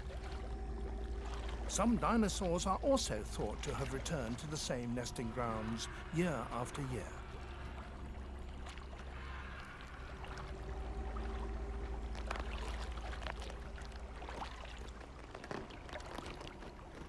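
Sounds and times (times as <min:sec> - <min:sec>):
low steady rumble: 0:00.0 - 0:17.0
water lapping against rocks: 0:00.0 - 0:17.0
small splashes: 0:07.2 - 0:17.0.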